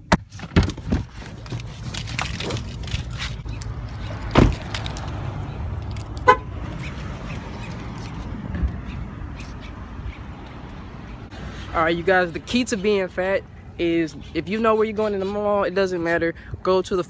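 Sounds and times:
outdoor traffic noise: 0:00.0 - 0:17.0
car door clicks and knocks: 0:04.3 - 0:04.7
car door shutting: 0:04.3 - 0:04.7
car horn beep: 0:06.2 - 0:06.6.

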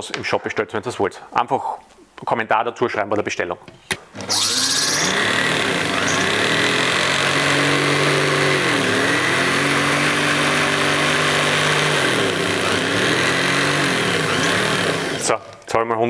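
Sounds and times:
line-spooling machine motor: 0:04.2 - 0:15.4.

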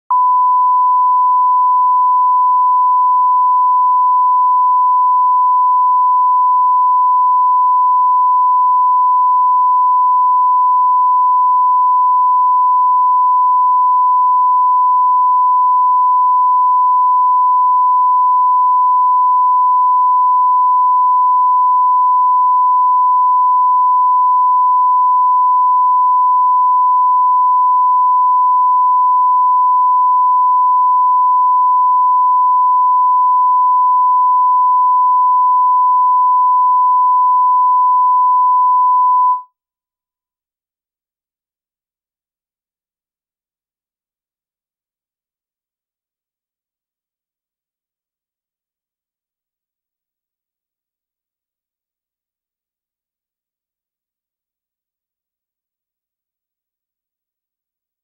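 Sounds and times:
steady pure test tone: 0:37.2 - 0:39.4.

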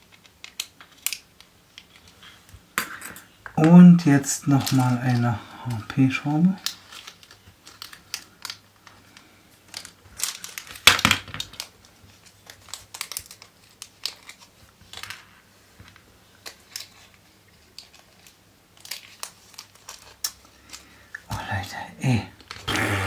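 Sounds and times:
plastic bag crinkling: 0:03.6 - 0:15.0, 0:16.4 - 0:21.6.

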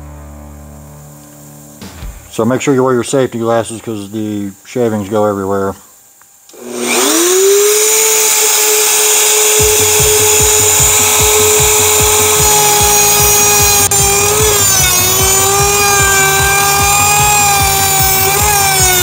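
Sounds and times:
router bit chattering into wood: 0:06.5 - 0:19.0
router high whine: 0:06.5 - 0:19.0.

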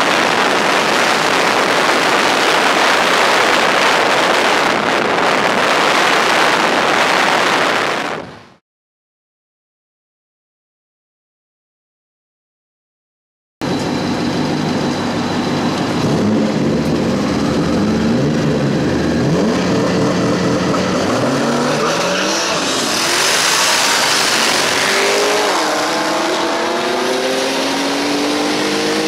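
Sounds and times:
car engines revving: 0:13.6 - 0:29.0
engine accelerating from inside car: 0:14.8 - 0:29.0
cars launching with loud rush: 0:15.9 - 0:29.0.

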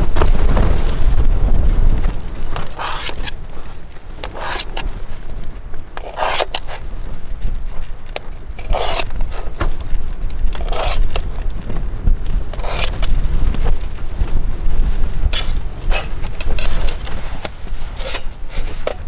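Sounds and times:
wind rumble on microphone: 0:00.0 - 0:19.0
scraping or rubbing noise: 0:01.9 - 0:05.2, 0:06.0 - 0:07.0, 0:08.1 - 0:09.9, 0:10.5 - 0:11.3, 0:12.5 - 0:13.9, 0:14.8 - 0:19.0.

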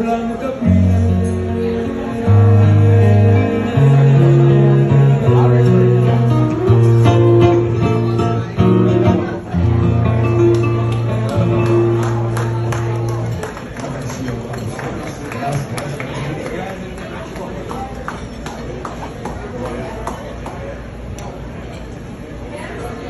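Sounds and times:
acoustic guitar playing: 0:00.0 - 0:13.5
deep bass line: 0:00.7 - 0:13.3.

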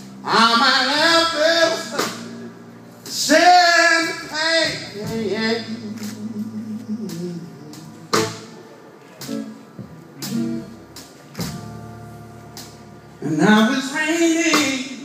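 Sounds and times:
electric guitar: 0:00.0 - 0:15.0
person singing: 0:03.2 - 0:09.3.

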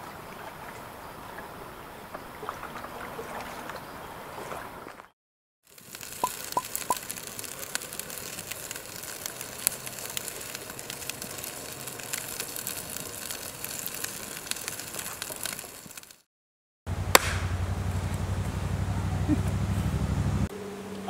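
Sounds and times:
campfire crackling: 0:05.7 - 0:16.3, 0:16.9 - 0:20.5.

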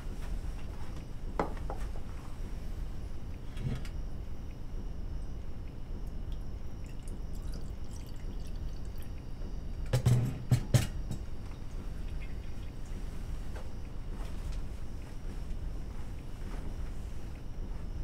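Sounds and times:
coffee pouring into a glass: 0:06.8 - 0:09.1
pot knocking on counter: 0:10.0 - 0:11.0.

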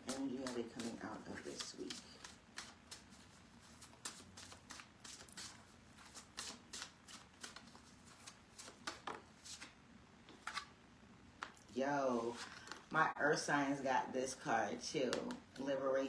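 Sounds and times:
cards being shuffled: 0:00.0 - 0:10.7.

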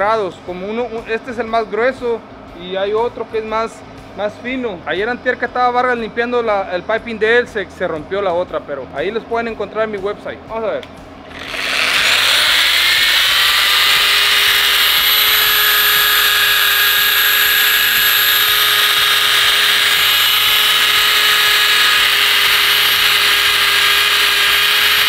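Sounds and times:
belt sander whining on metal: 0:11.3 - 0:25.0.

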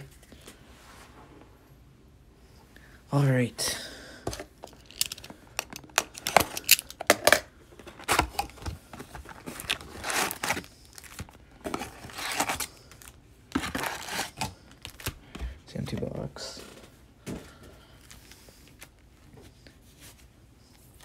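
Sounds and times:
cardboard box tearing: 0:09.4 - 0:12.7.

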